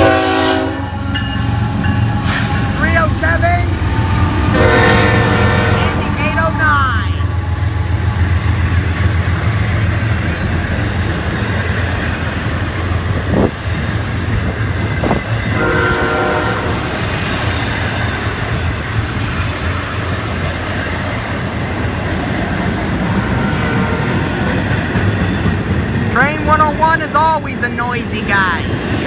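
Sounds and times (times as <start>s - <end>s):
train horn: 0.0s - 2.8s, 4.4s - 7.6s, 15.5s - 17.0s, 23.2s - 24.4s
train rumbling past: 0.0s - 29.0s.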